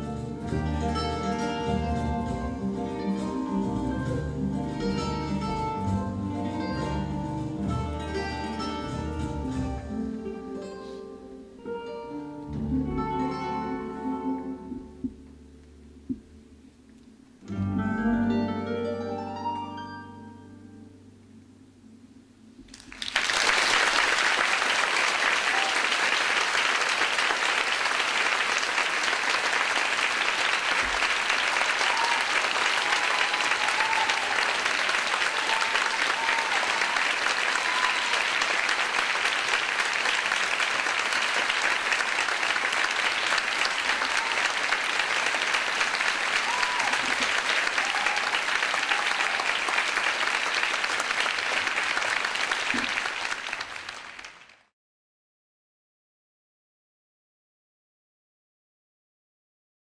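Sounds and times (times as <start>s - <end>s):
large audience applauding: 22.7s - 54.7s.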